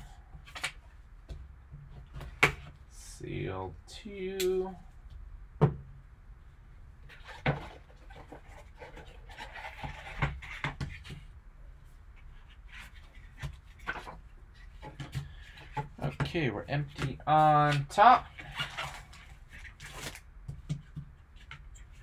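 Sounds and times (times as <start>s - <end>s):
cardboard rubbing and scraping: 7.1s - 11.2s, 17.7s - 20.2s.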